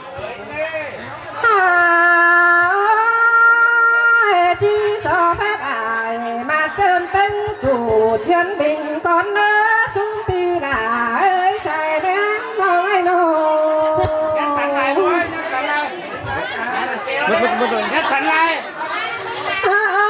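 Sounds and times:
woman singing slow melody: 1.4 - 14.8.

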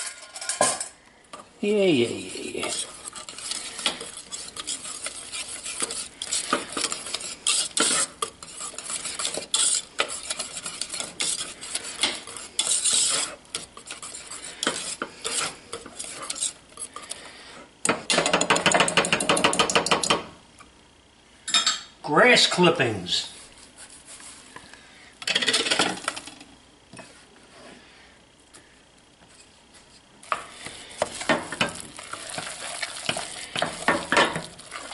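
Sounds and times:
whisk scraping metal saucepan: 1.6 - 17.5, 30.2 - 34.9.

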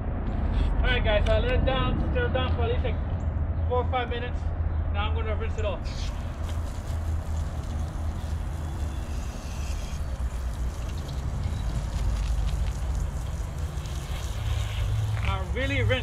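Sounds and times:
steady low rumble: 0.0 - 16.0
hose nozzle spraying water: 5.9 - 16.0.

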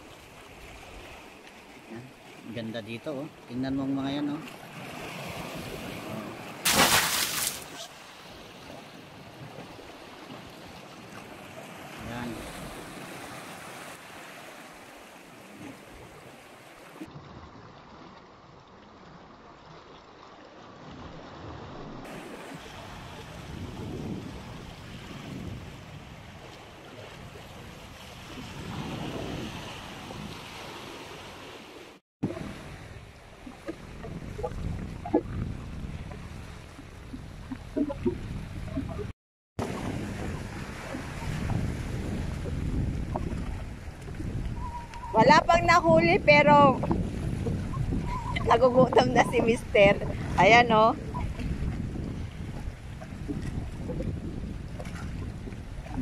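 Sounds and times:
seawater splashing among rocks: 4.4 - 23.7, 26.3 - 45.7
wind rumbling on microphone: 20.9 - 31.3, 32.2 - 56.0
waves washing against rocks: 39.6 - 56.0.

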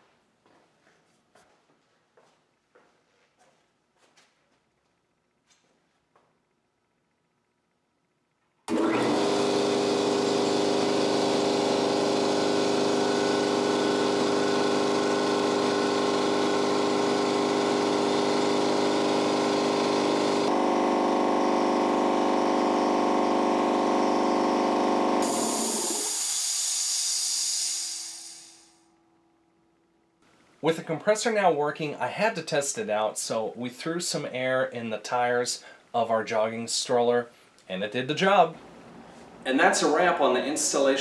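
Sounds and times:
air compressor running: 8.7 - 28.8
sharp hiss of air: 25.2 - 28.8.

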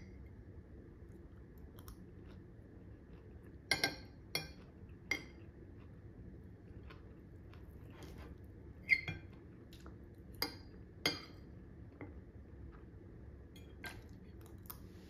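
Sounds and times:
cutlery clinking on a plate: 3.7 - 5.4.

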